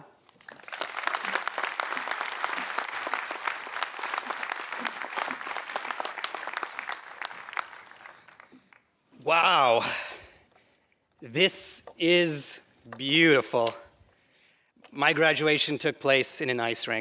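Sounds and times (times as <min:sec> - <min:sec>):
audience clapping: 0:00.0 - 0:08.9.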